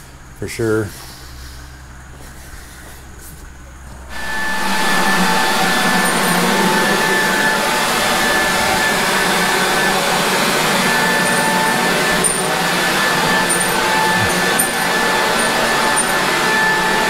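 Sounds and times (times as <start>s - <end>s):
electric leaf blower running: 4.1s - 17.0s.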